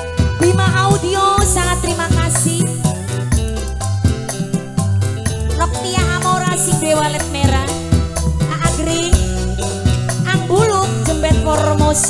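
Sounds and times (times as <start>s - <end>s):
bass line: 0.0s - 12.0s
keyboard organ melody: 0.0s - 12.0s.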